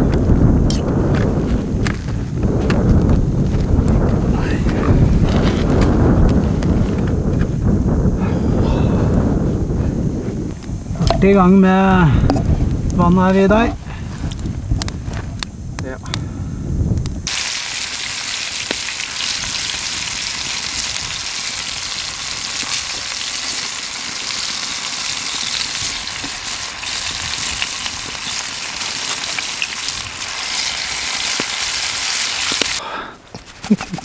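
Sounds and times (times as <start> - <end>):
fish sizzling in hot oil: 17.2 - 32.8.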